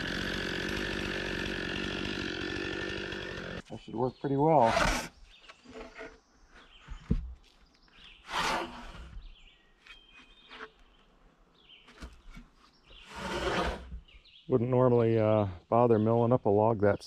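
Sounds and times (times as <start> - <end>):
bird chirps: 9.2 - 13.2.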